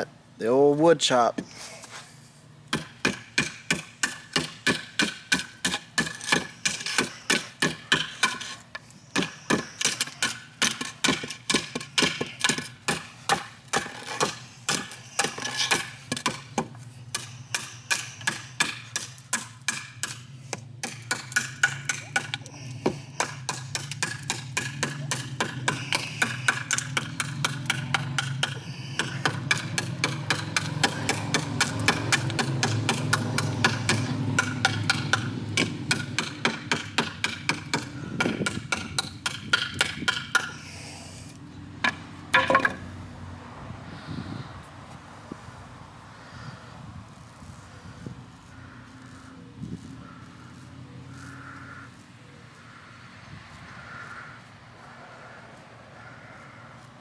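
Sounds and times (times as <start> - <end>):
knife chopping into wood: 2.8 - 40.6.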